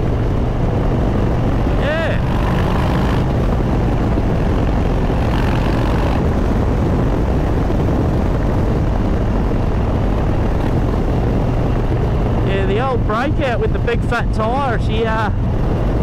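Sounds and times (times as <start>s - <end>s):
motorcycle engine running: 0.0s - 16.0s
wind on microphone: 0.0s - 16.0s.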